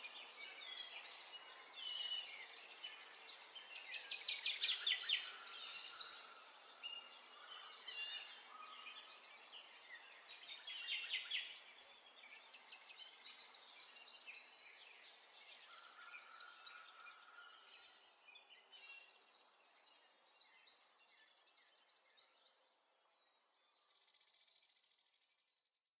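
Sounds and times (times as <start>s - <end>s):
birds chirping and trilling: 0.0s - 25.3s.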